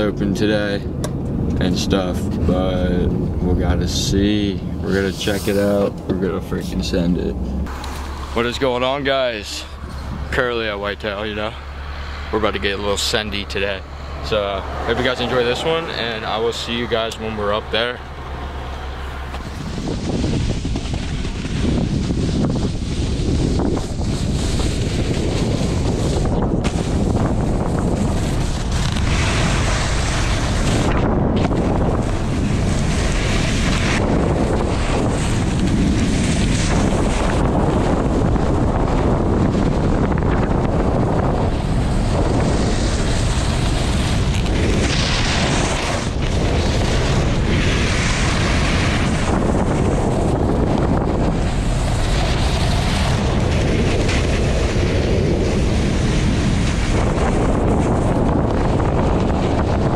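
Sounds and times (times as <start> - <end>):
wind rushing over microphone: 0.0 - 59.9
snowboard scraping packed snow: 4.0 - 9.3, 19.4 - 40.0, 40.6 - 59.9.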